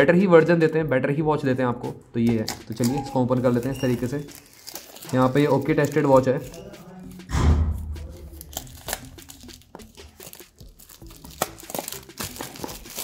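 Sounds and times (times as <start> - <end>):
plastic wrap crinkling and tearing: 2.4 - 7.3, 8.0 - 13.0.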